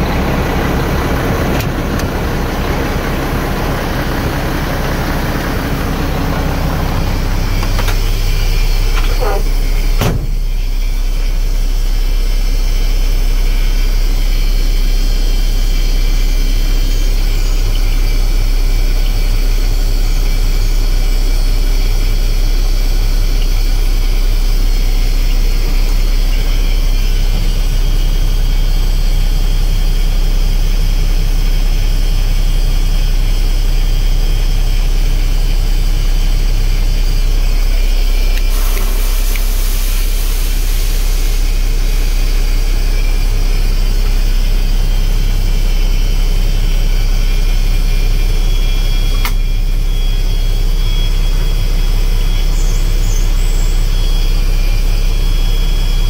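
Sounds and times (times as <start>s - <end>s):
diesel engine running: 0.0s - 56.0s
hiss: 38.4s - 44.0s.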